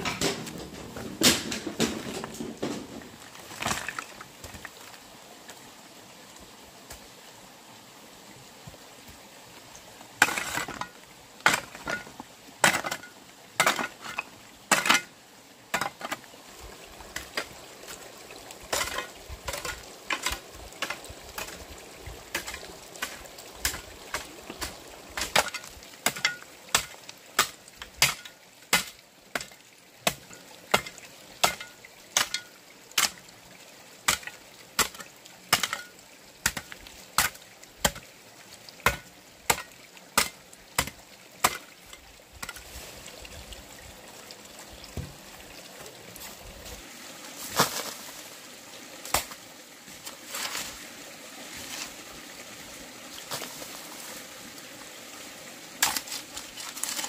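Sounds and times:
wood being chopped: 0:00.0 - 0:03.0.

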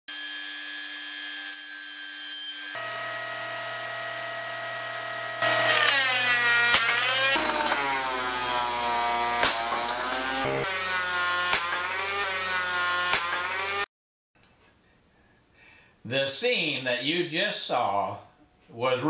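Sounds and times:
thickness planer motor whine: 0:00.1 - 0:01.8, 0:02.4 - 0:13.9.

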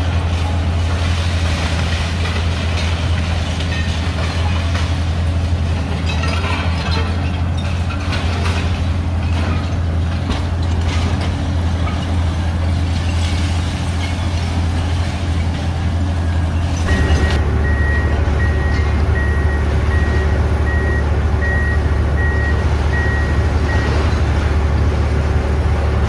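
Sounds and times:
excavator diesel engine running: 0:00.0 - 0:26.0
reversing alarm beeping: 0:16.8 - 0:24.1.

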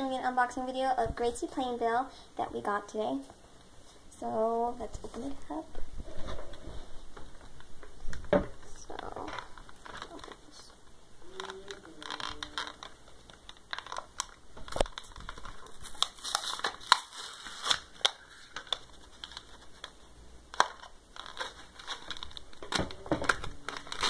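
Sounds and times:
plastic packaging crinkling: 0:07.6 - 0:24.0.

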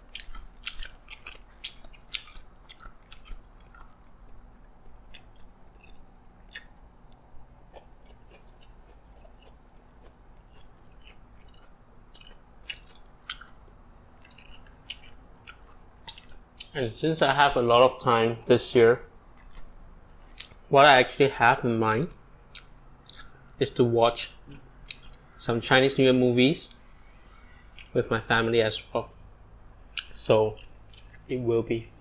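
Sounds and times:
person chewing crunchy food: 0:00.0 - 0:16.8, 0:19.2 - 0:20.7, 0:21.9 - 0:23.6, 0:24.4 - 0:25.4, 0:29.9 - 0:31.3.

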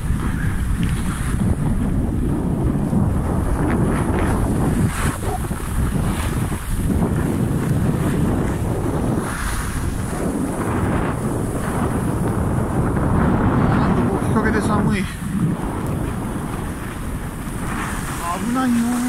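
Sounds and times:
wind on microphone: 0:00.0 - 0:19.0
skis swishing over snow: 0:03.8 - 0:12.5, 0:17.0 - 0:19.0.

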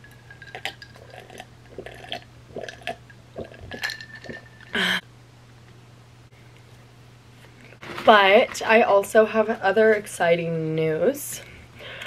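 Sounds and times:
person swallowing gulps: 0:00.6 - 0:05.0.

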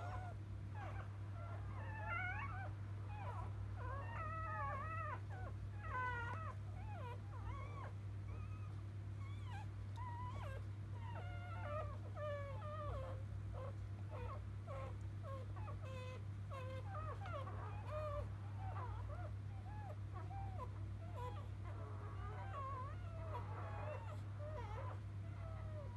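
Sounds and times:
puppies squeaking and whimpering: 0:00.0 - 0:25.9.

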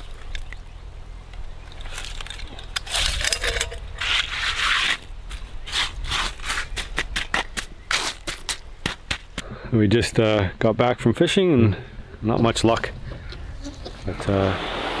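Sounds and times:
hand tool scraping gravelly soil: 0:01.8 - 0:08.5.

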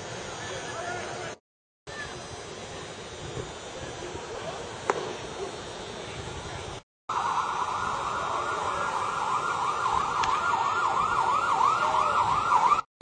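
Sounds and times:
siren yelping: 0:07.1 - 0:12.9.

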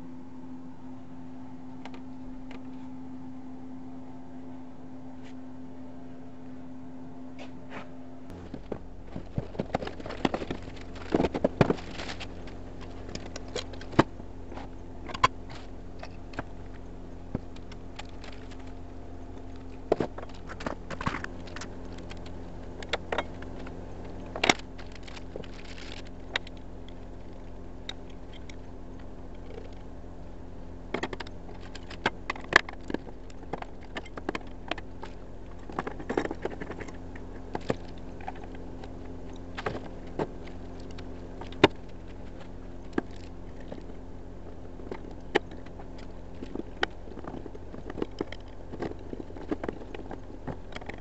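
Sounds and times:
steady low hum: 0:00.0 - 0:51.0
plastic packaging rustling: 0:08.3 - 0:29.9
plastic and metal parts clattering: 0:08.3 - 0:51.0.

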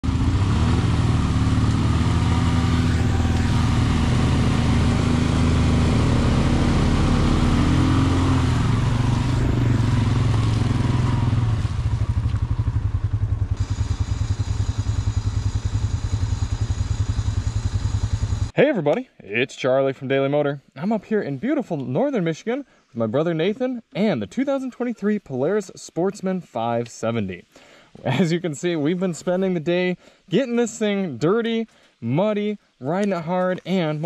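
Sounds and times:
atv engine running: 0:00.0 - 0:18.6
wheels churning mud: 0:00.2 - 0:12.7.

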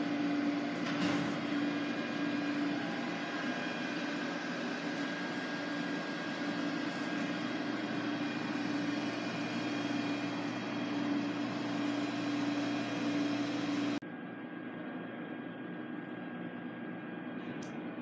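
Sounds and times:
machinery hum and hiss: 0:00.0 - 0:14.0.

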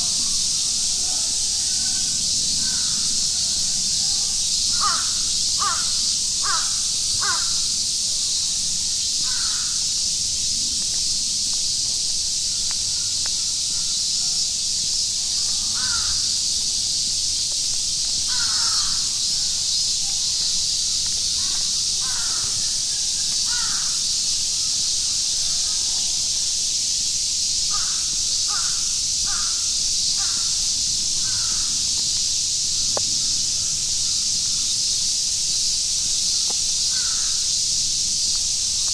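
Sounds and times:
crows cawing: 0:04.7 - 0:07.6, 0:09.2 - 0:09.8, 0:15.7 - 0:16.3, 0:18.3 - 0:19.1, 0:21.4 - 0:22.7, 0:23.5 - 0:24.0, 0:27.7 - 0:29.6, 0:30.2 - 0:30.5, 0:31.2 - 0:31.7, 0:36.9 - 0:37.3.

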